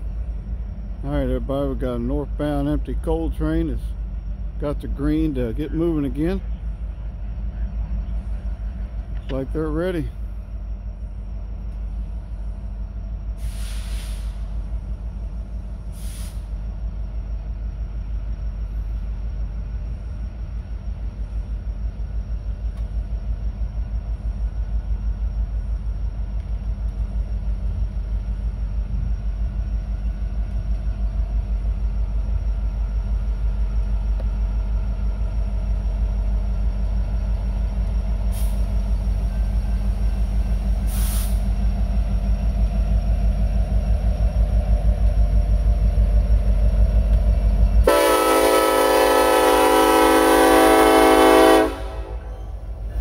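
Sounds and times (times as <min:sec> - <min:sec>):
locomotive engines rumbling: 0:00.0 - 0:53.0
air hissing: 0:13.4 - 0:14.6, 0:15.8 - 0:16.7, 0:38.3 - 0:38.9, 0:40.7 - 0:41.6.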